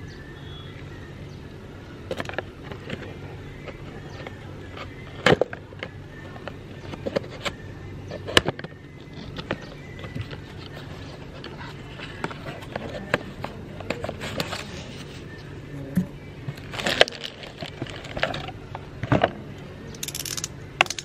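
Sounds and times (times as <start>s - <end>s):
cardboard and plastic crinkling: 16.5s - 18.6s.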